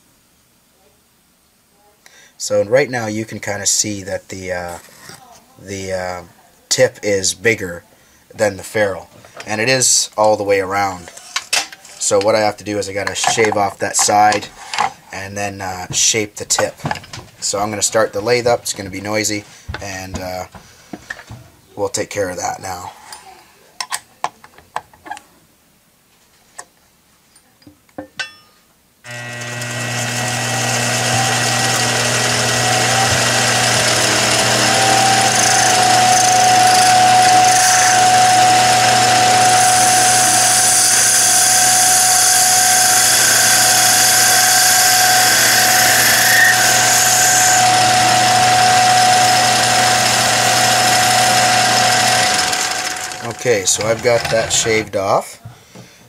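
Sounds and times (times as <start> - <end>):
lathe motor running with whine: 29.1 - 54.8.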